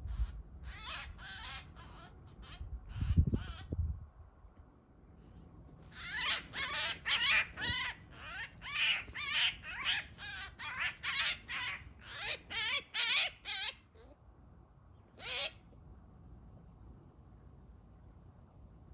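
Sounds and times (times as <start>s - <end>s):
magpie harsh distress calls: 0.0s - 3.7s, 5.9s - 14.1s, 15.2s - 15.6s.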